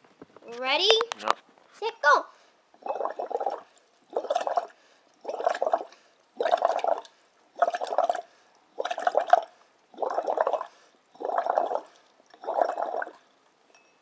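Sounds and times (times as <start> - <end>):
air bubbling through straws: 2.8 - 13.2.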